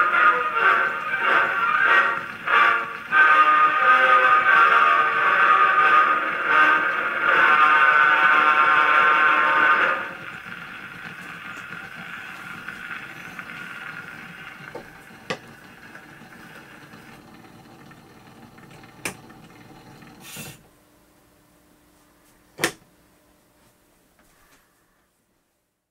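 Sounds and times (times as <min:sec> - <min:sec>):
orchestra on record: 0:00.0 - 0:14.8.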